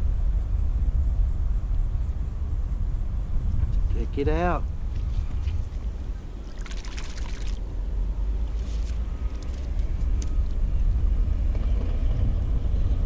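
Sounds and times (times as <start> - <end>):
wind rumbling on microphone: 0.0 - 13.0
hand splashing water: 6.5 - 7.6.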